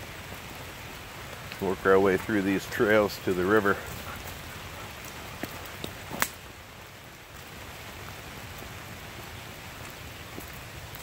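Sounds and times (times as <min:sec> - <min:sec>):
steady rain falling: 0:00.0 - 0:11.0.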